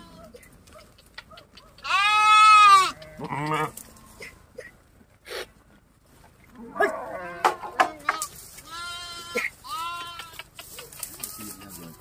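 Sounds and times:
sheep and goats bleating: 0.0 - 0.3, 1.8 - 4.4, 6.6 - 12.0.

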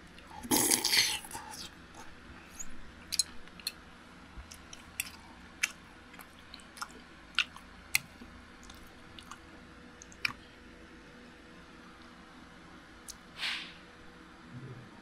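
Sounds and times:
chewing and wet mouth sounds: 0.1 - 3.8, 4.4 - 10.5.

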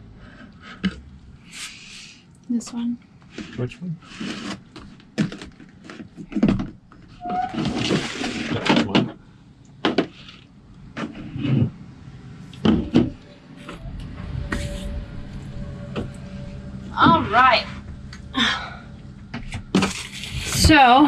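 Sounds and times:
plastic and wrap rustling: 19.7 - 21.0.

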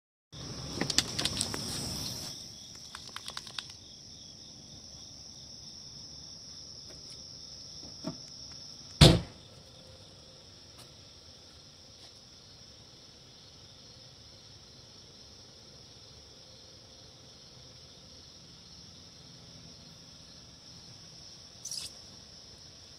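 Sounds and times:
insects trilling: 0.4 - 22.9
sharp clicks: 2.7 - 3.8
loud thump: 9.0 - 9.4.

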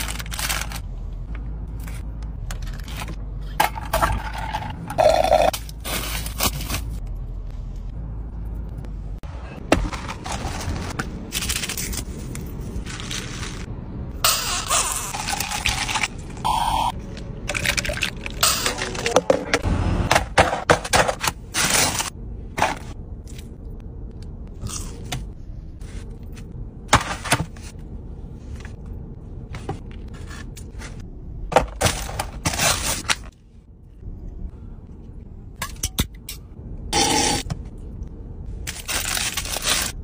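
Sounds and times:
food packaging crinkling: 38.7 - 40.0.

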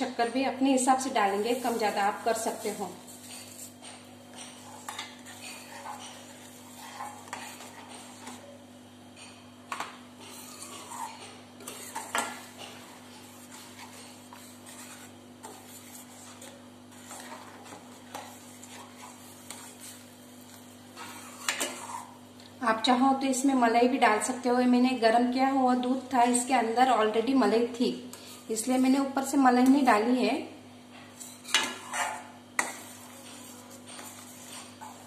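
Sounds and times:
spoon scraping a metal pan: 1.0 - 8.5, 9.7 - 22.2, 31.2 - 35.0.

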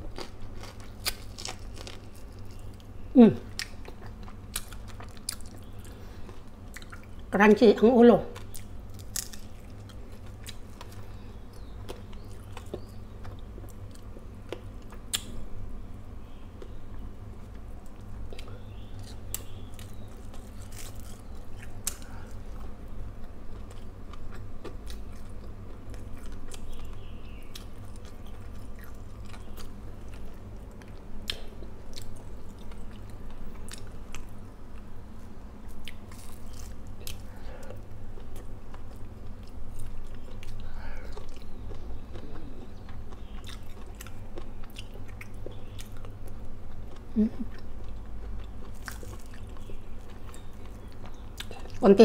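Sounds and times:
person chewing and biting food: 0.0 - 2.9, 8.4 - 11.0, 18.2 - 34.9, 35.7 - 51.8
steady low hum: 0.0 - 52.0.

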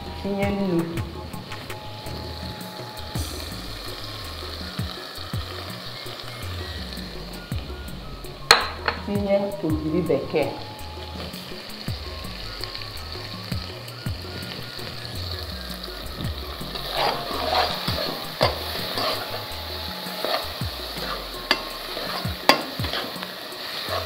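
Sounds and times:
sauce frying in oil: 0.0 - 24.0
metal spoon scraping a pot: 16.8 - 24.0.

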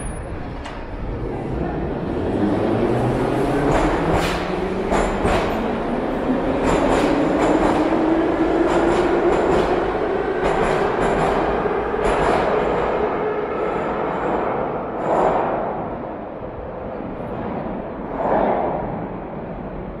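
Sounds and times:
train wheels clicking and clattering: 3.6 - 13.2.

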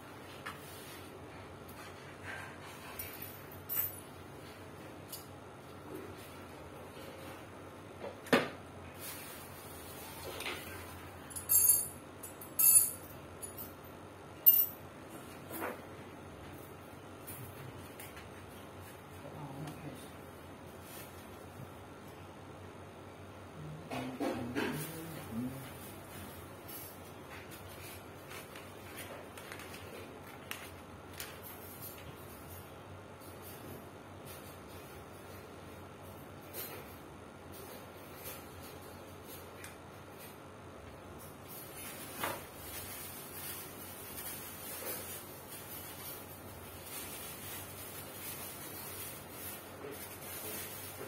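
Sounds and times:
plastic packaging crinkling: 28.2 - 31.4.

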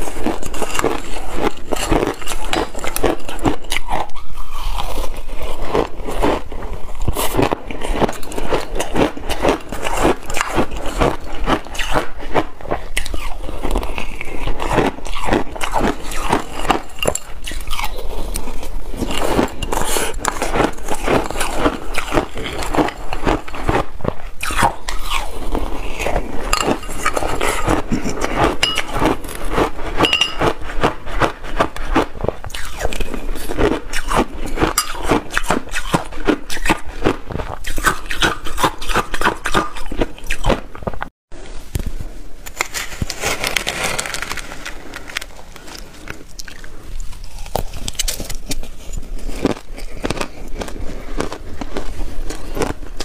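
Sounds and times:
metal spoon scraping glass bowl: 16.3 - 18.0, 26.2 - 30.6, 34.1 - 35.5
shaved ice crunching: 42.5 - 46.6.

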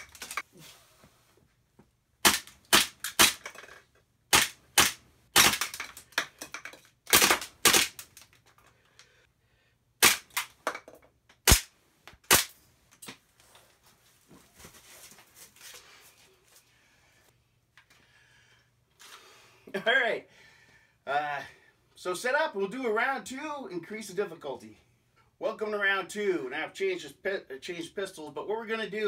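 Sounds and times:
airsoft pistol shots: 2.2 - 3.4, 4.3 - 5.8, 10.0 - 10.5, 11.4 - 11.7, 12.3 - 12.5.

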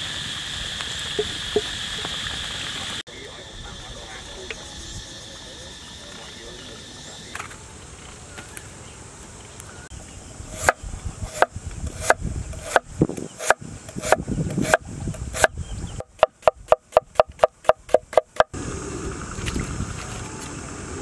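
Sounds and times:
cleaver chopping on wooden board: 10.6 - 12.8, 13.4 - 14.8, 15.4 - 18.5.

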